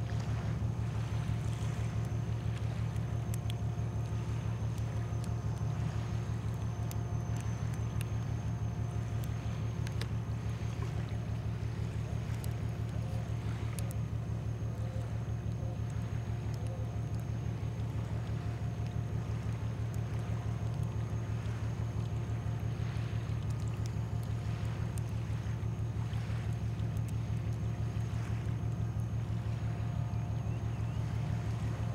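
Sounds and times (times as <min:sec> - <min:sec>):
boat diesel engine droning: 0:00.0 - 0:31.9
faint clicks: 0:01.5 - 0:11.2, 0:11.8 - 0:22.4, 0:23.0 - 0:28.8.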